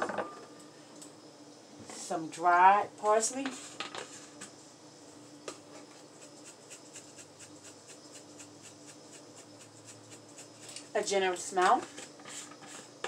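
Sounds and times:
faint hum: 0.0 - 13.0
dried herbs pattering from jar: 6.0 - 11.5.

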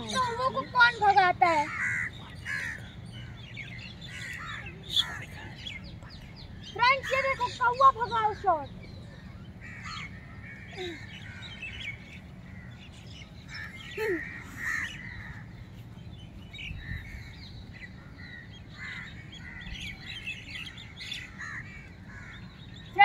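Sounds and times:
birds chirping: 0.0 - 23.0
crows cawing: 1.4 - 5.4, 9.6 - 12.9, 13.5 - 15.5, 18.0 - 22.5.

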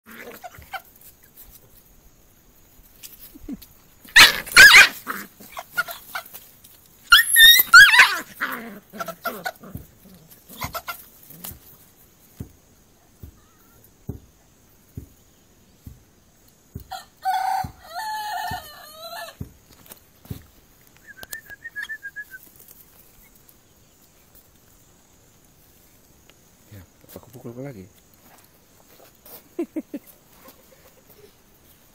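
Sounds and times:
chicken squawking: 4.2 - 6.3, 7.1 - 9.6, 10.6 - 11.1.

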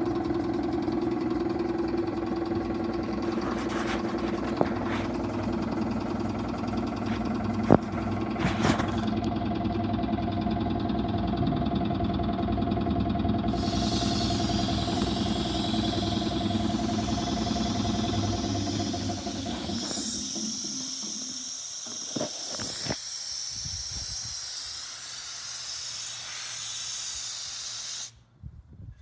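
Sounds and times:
engine running: 0.0 - 28.4
compressed air hissing: 2.5 - 9.1, 13.5 - 28.2.

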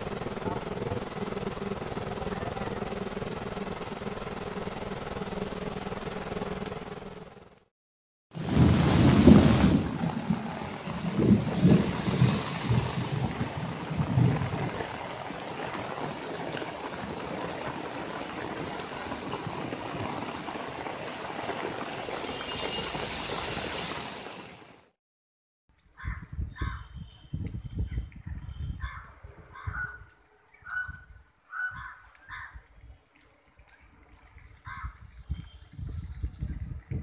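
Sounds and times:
heavy rain hissing: 0.0 - 6.5, 10.5 - 24.7
low rumbles: 0.0 - 7.6.

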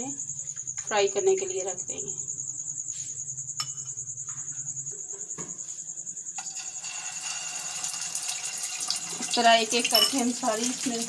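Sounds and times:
insect-like trill: 0.0 - 11.0
hot oil sizzling in frying pan: 6.4 - 11.0.

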